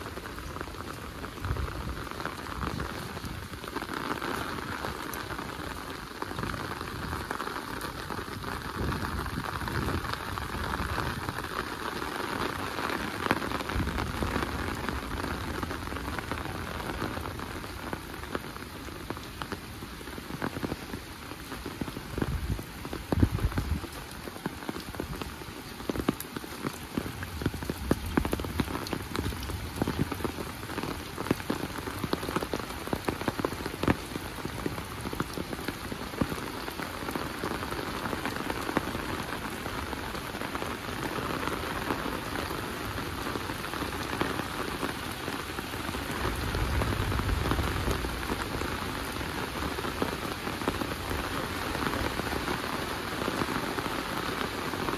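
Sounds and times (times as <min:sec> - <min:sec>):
heavy rain falling: 0:00.0 - 0:54.9
low rumble: 0:46.0 - 0:49.6.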